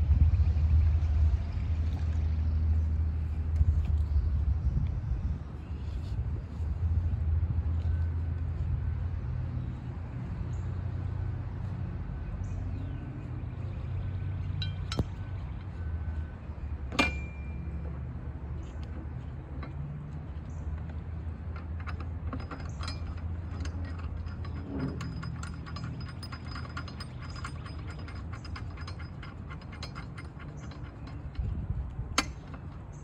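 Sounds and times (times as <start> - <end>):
steady low rumble: 0.0 - 33.0
metal clink: 14.6 - 15.2, 16.9 - 17.8, 21.6 - 31.5
rapid ratchet clicks: 21.8 - 31.6.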